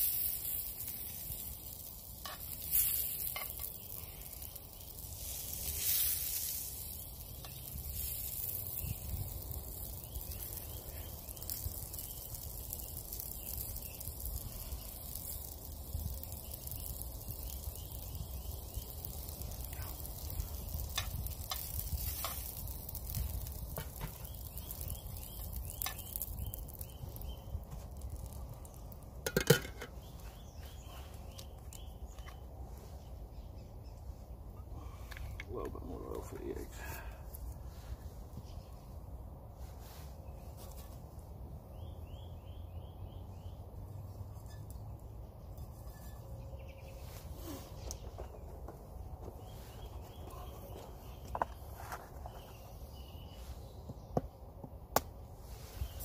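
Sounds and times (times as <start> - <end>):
sausages sizzling in a frying pan: 0.0 - 32.2.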